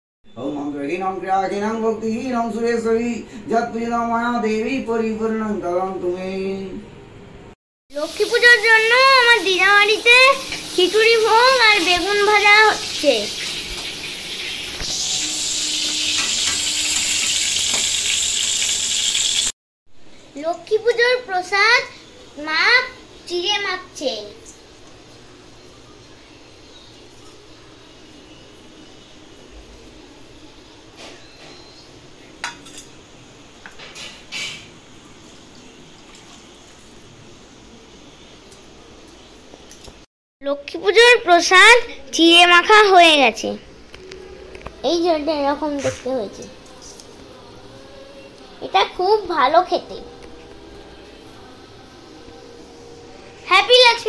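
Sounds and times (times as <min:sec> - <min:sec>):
eggplant sizzling in hot oil: 0:07.9 - 0:19.6
steel bowls and spoon clinking: 0:32.4 - 0:33.0.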